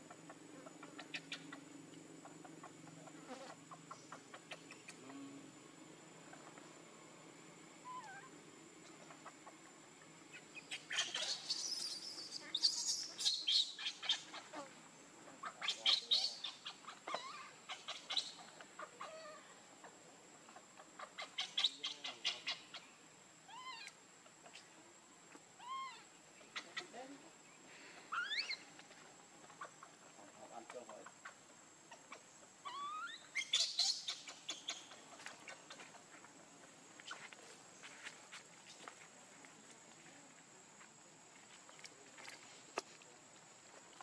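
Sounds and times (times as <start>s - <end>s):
baby monkey crying: 15.6s - 18.4s, 23.5s - 24.0s, 25.6s - 26.0s, 28.1s - 28.6s, 32.6s - 34.9s.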